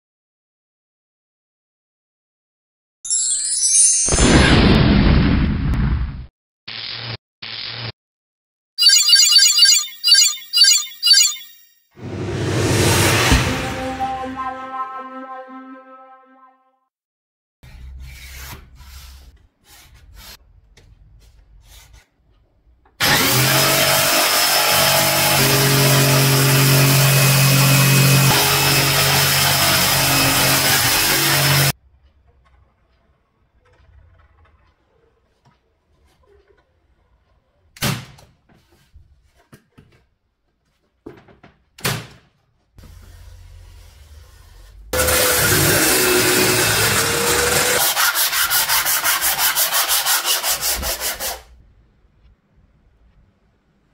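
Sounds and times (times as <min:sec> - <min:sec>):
jigsaw cutting board: 0:23.0 - 0:31.7, 0:45.0 - 0:51.4
pencil scratching along ruler: 0:47.6 - 0:51.5.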